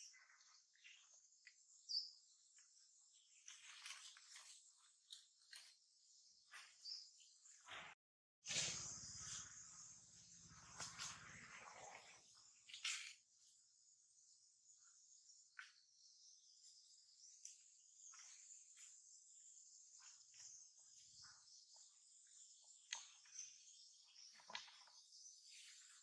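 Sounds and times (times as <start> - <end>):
insect chorus drone: 8.5 - 15.7.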